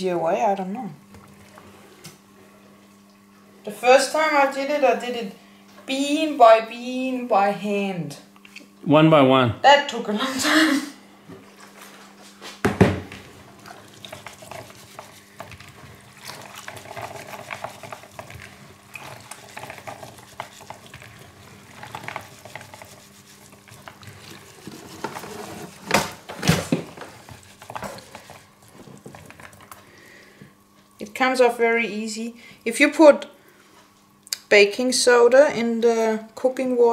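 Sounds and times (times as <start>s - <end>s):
chickpeas squishing and clicking: 14.0s - 24.3s.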